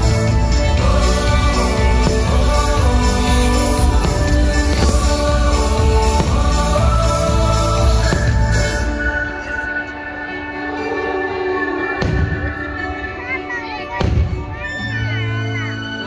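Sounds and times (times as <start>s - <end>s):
orchestral music with choir: 0.0s - 16.0s
firework bangs: 1.3s - 8.8s.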